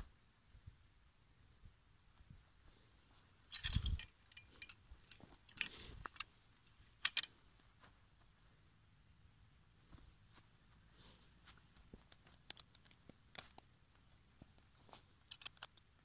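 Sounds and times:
rustling dry grass: 2.0s - 8.6s, 9.8s - 16.0s
metal trap chain clinking: 3.4s - 6.3s.

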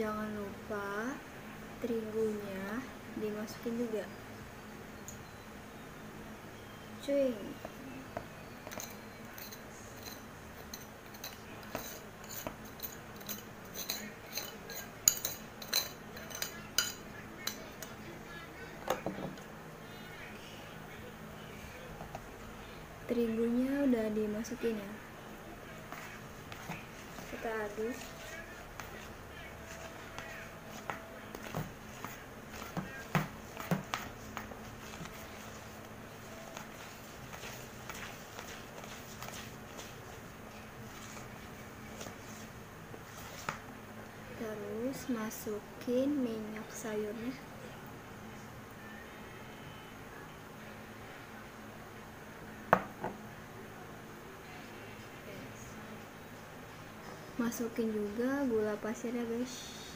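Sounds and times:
metal spoon clinking on glass bowl: 8.6s - 17.9s.

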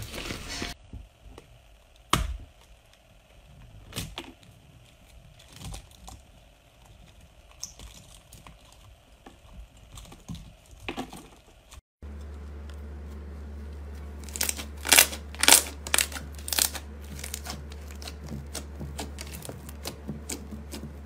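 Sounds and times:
paint coat cracking: 3.9s - 21.0s
paint snapping: 7.0s - 21.0s.

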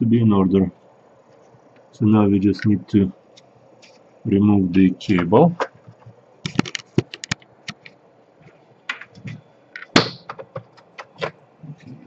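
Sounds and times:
plastic clicks and taps: 6.5s - 7.9s.

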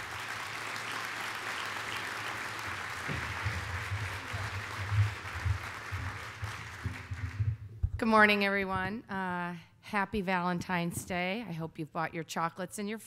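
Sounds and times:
audience applauding: 0.0s - 7.7s
low thumps near microphone: 3.0s - 9.1s.

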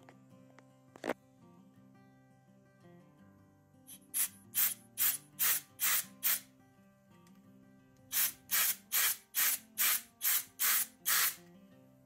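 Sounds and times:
acoustic guitar music: 0.0s - 10.2s, 10.8s - 12.0s
aerosol spray hissing spurts: 4.0s - 6.4s, 8.1s - 11.4s.

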